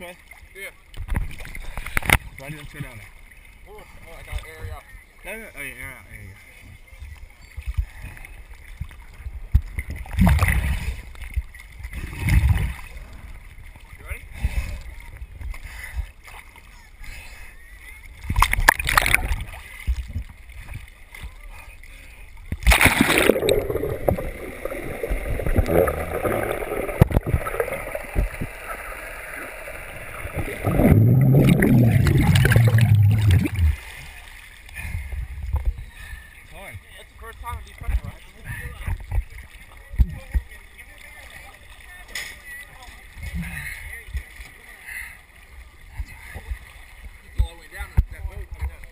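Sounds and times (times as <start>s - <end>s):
water rushing and gurgling: 0.0s - 48.9s
seawater sloshing against camera: 18.1s - 36.4s.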